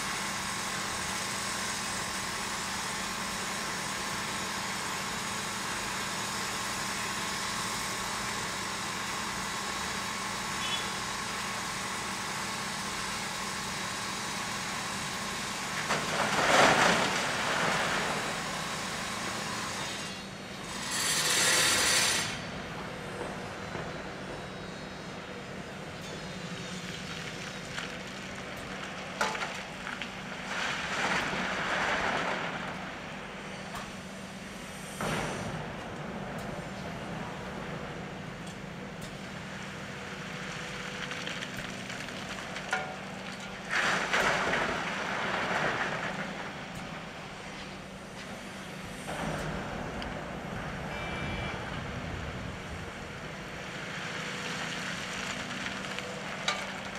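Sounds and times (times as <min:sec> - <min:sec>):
diesel machinery running: 0:00.0 - 0:56.9
rocks crashing into steel bed: 0:42.4 - 0:46.7.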